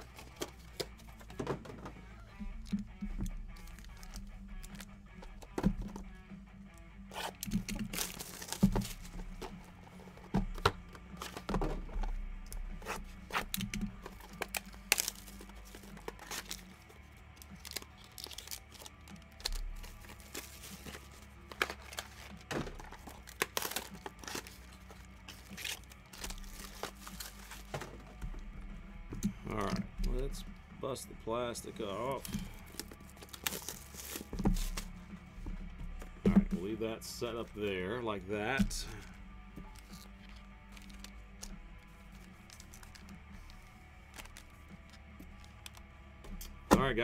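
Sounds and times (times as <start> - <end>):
shrink-wrap plastic tearing: 7.2 - 9.0, 13.4 - 16.8, 17.4 - 27.7, 32.2 - 34.8.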